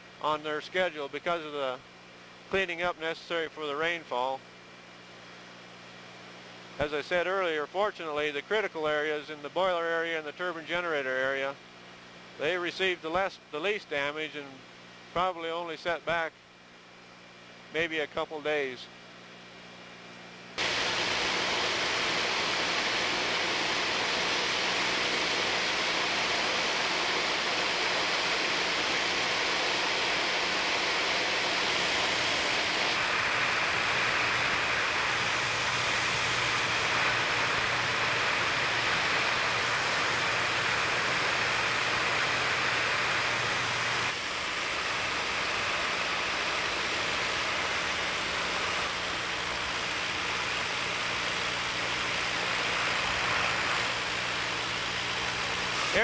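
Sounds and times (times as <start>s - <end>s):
airplane engine drone: 19.5s - 56.0s.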